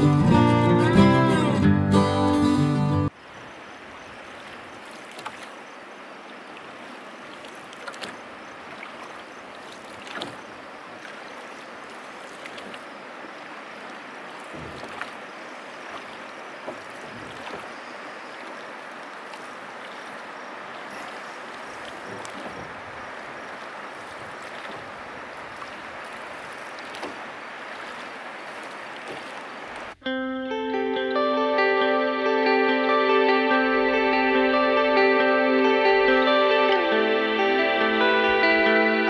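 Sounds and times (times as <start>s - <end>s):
guitar music: 0.0s - 3.1s, 30.0s - 39.0s
river water washing against boat hull: 3.1s - 30.0s
water splashes: 3.1s - 30.0s.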